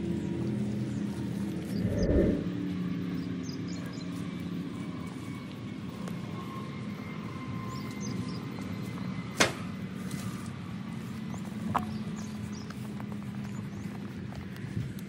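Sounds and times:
steady low hum: 0.6 - 3.0
footsteps through grass: 4.1 - 14.9.

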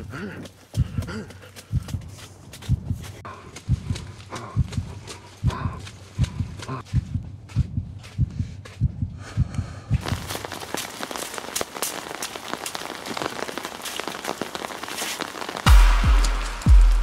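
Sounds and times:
running footsteps thudding: 0.0 - 17.0
steady pattering hiss: 10.0 - 17.0.

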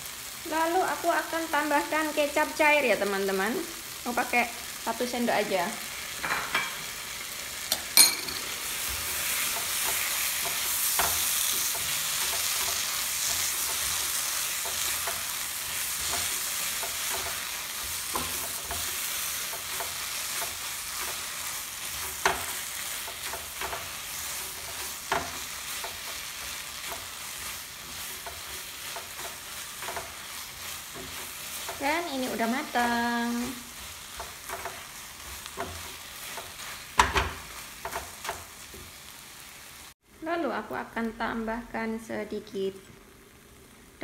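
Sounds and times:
food sizzling in a pan: 0.0 - 44.0
utensils knocking on pan: 7.7 - 21.3, 21.9 - 27.2, 34.2 - 38.9
spatula stirring and scraping: 8.6 - 39.0.

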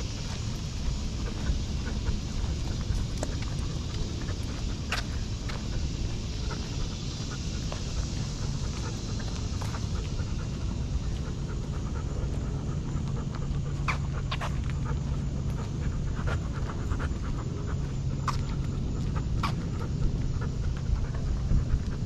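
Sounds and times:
dog panting: 0.0 - 22.0.

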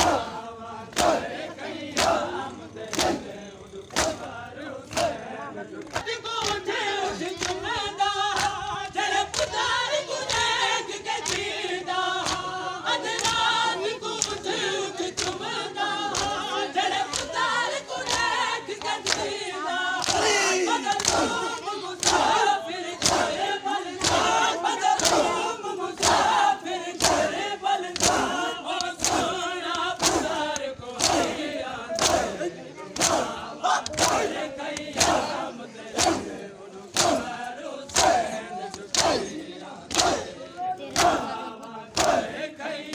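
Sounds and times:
crowd of men chanting: 0.0 - 42.9
hand slaps on bare chests: 2.9 - 3.2, 3.9 - 4.3, 12.2 - 12.5, 14.2 - 14.4, 20.0 - 22.4, 23.0 - 23.3, 25.0 - 25.3, 26.0 - 26.4, 27.0 - 31.4, 32.0 - 32.3, 33.0 - 35.4, 36.0 - 37.3, 37.9 - 40.3, 40.9 - 42.3.

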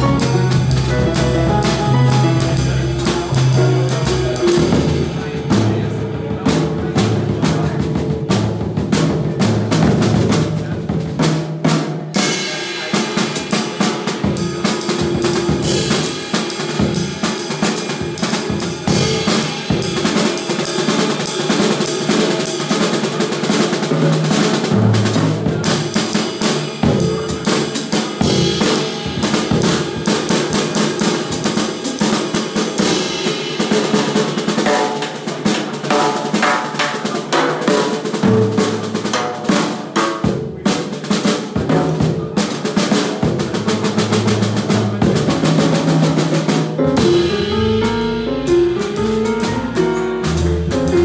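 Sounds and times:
bass drum: 0.0 - 11.4, 43.2 - 51.0
snare and tom strokes: 0.0 - 51.0.

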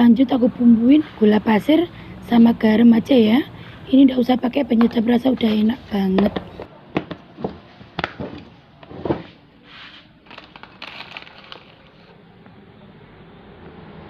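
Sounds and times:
kitchen items knocking and clicking: 4.7 - 9.3.

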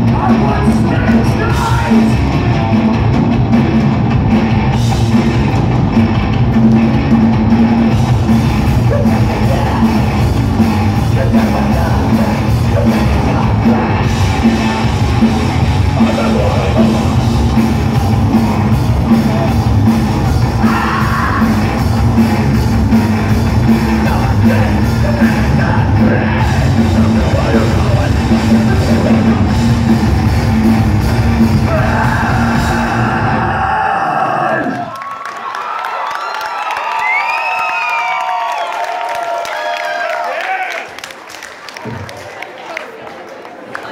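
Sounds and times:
yelled vocals: 0.0 - 6.4, 7.0 - 35.1
hardcore punk band playing live: 0.0 - 34.6.

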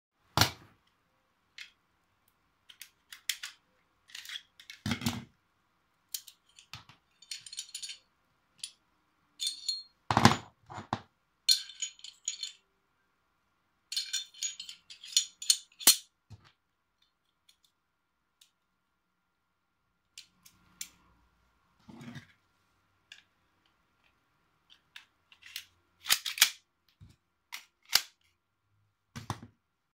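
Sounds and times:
pistol parts clicking and rattling: 2.6 - 5.0, 6.1 - 8.8, 11.4 - 12.7, 13.9 - 16.1, 24.0 - 28.3.

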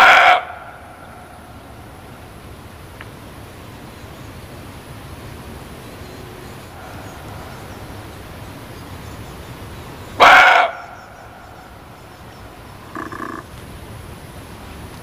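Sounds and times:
deer barking: 0.0 - 0.8, 10.2 - 11.0, 12.8 - 13.5
faint deer call: 0.0 - 2.1, 6.0 - 8.4, 10.1 - 13.5.

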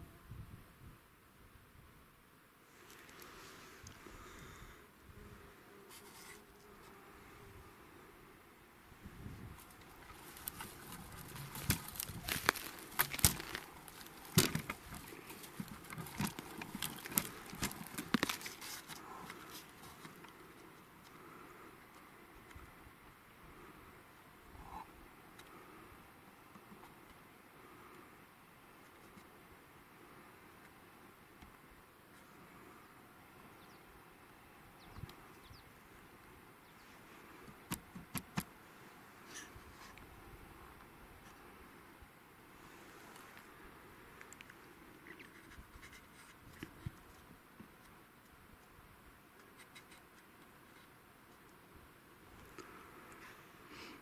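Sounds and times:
crackling of movement in dry brush: 2.7 - 4.8, 5.8 - 7.4, 8.9 - 22.7, 42.5 - 51.6
faint bird chirps: 32.8 - 34.0, 34.6 - 35.8.

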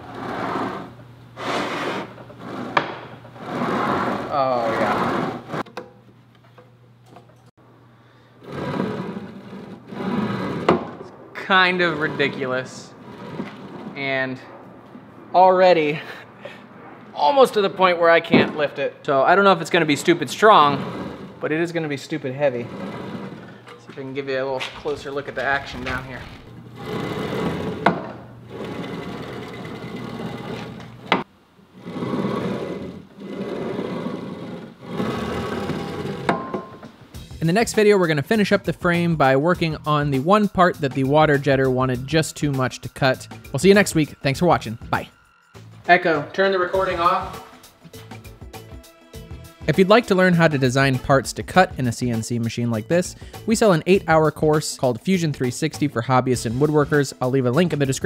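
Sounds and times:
bearing blocks rolling on rails: 24.7 - 36.8.

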